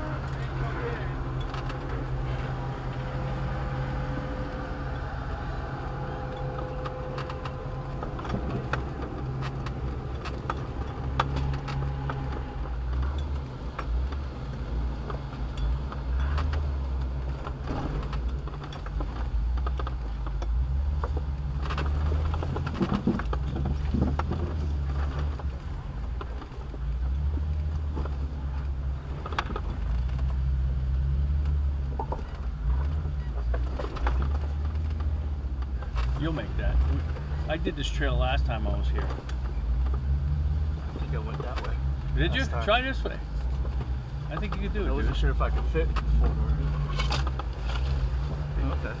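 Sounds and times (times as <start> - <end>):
off-road vehicle engine rumbling: 0.0 - 49.0.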